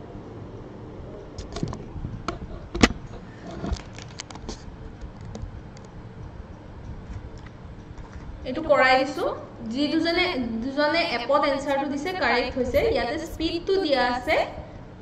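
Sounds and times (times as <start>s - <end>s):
steady low hum: 0.0s - 15.0s
camera handling clicks and rattles: 1.4s - 6.0s.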